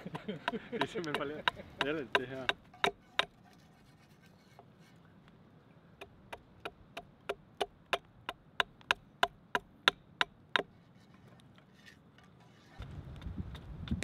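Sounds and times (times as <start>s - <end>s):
axe chopping wood: 0.0s - 3.4s.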